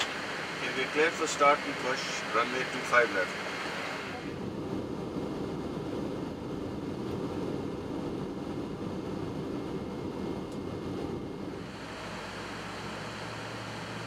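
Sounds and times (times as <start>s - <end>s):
faint high whine: 0.0s - 5.6s
engine hum: 0.0s - 14.0s
steady rushing noise: 0.0s - 14.0s.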